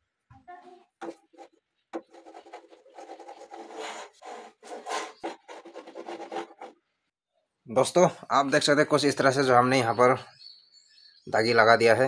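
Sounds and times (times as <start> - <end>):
wood scraping against wooden panel: 1.0 - 6.8.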